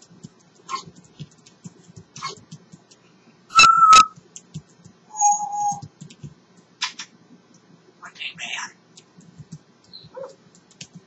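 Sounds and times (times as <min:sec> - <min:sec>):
parrot whistling: 0:03.5 - 0:04.2, 0:05.1 - 0:05.8.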